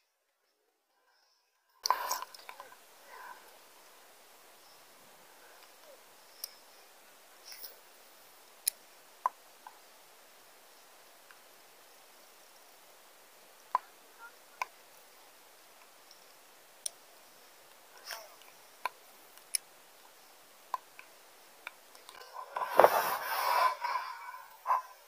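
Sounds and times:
faint sharp clicks: 1.8s - 2.8s, 5.5s - 6.7s, 8.6s - 9.8s, 15.8s - 23.0s
loud rustling and scraping: 22.2s - 24.9s.

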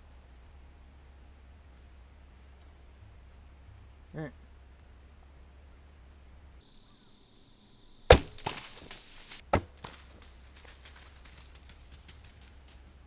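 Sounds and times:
sharp crack: 8.0s - 11.7s
clicks and rustles: 8.3s - 12.9s.

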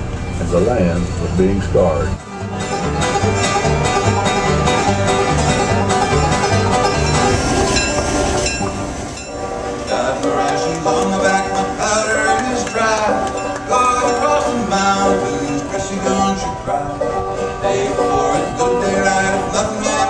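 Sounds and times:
upright bass plucking: 0.0s - 9.3s
strummed acoustic guitar: 0.5s - 20.0s
banjo picking: 1.9s - 20.0s.

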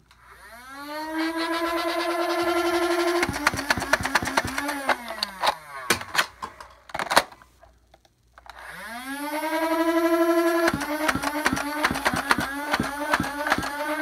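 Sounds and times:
spinning motor whine: 0.0s - 5.9s, 8.6s - 14.0s
toy blaster firing darts: 0.3s - 6.6s, 8.5s - 14.0s
loud plastic clacks: 3.2s - 7.5s, 10.6s - 14.0s.

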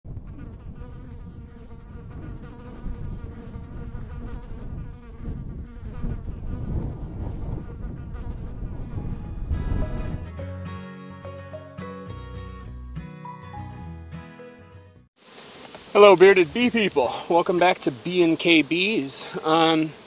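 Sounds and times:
bees buzzing: 0.2s - 9.8s, 15.2s - 20.0s.

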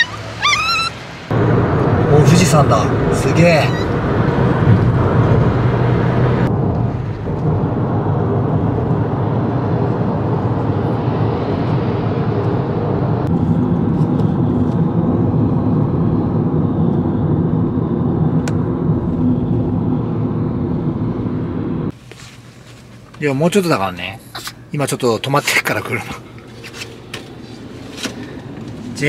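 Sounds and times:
road and tyre noise in car: 0.0s - 29.0s.

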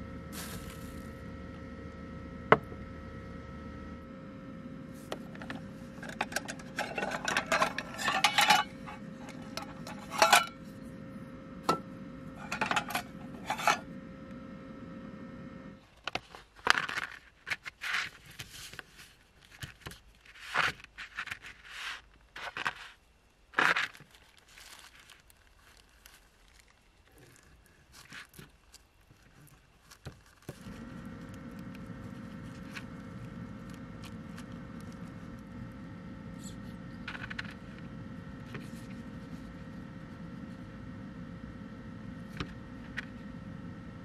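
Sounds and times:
steady low hum: 0.0s - 16.0s, 25.8s - 44.0s.

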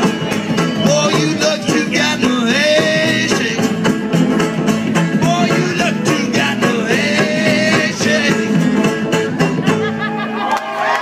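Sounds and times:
live band music: 0.0s - 11.0s.

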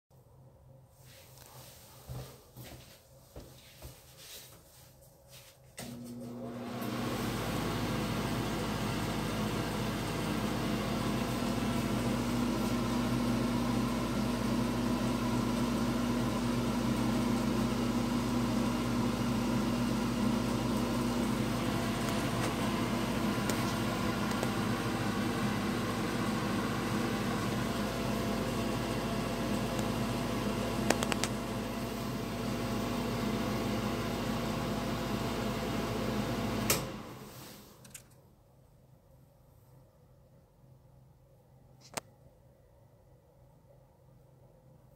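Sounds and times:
exhaust fan running: 5.4s - 37.6s.

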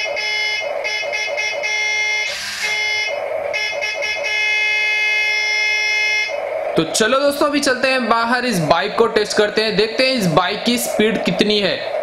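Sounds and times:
buzzy electronic toy horn: 0.0s - 6.3s.

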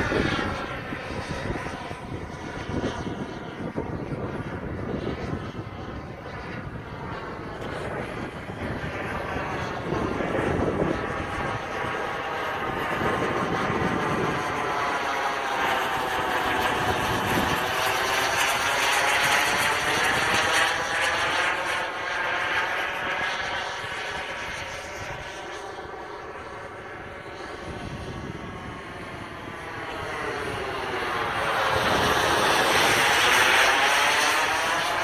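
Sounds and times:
jet flying past: 0.0s - 35.0s.

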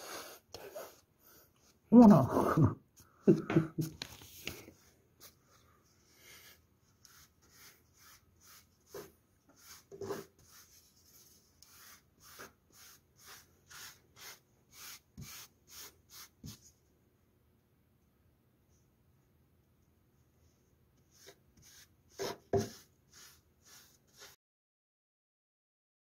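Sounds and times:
brush stroking on wood: 4.2s - 16.7s, 21.0s - 24.4s.

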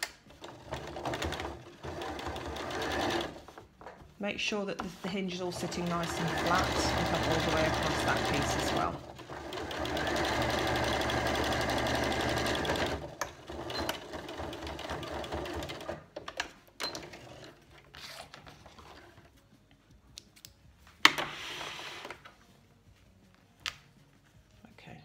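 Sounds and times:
sewing machine stitching: 0.3s - 3.6s, 5.4s - 16.0s.

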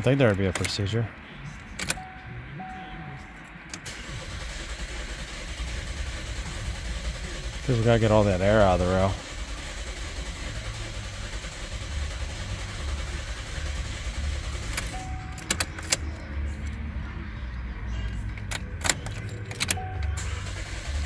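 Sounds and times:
car engine cranking: 0.0s - 21.0s
keys jingling: 1.6s - 2.3s, 3.1s - 4.0s, 14.7s - 16.8s, 18.2s - 20.3s.

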